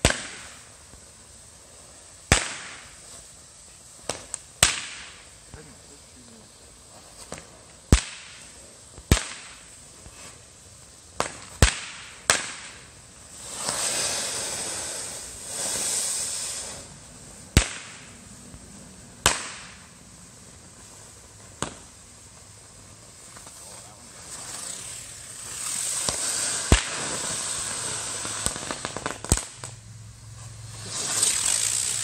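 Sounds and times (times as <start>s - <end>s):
fireworks bangs: 0.0s - 29.8s, 30.4s - 32.0s
fireworks hissing crackle: 0.0s - 32.0s.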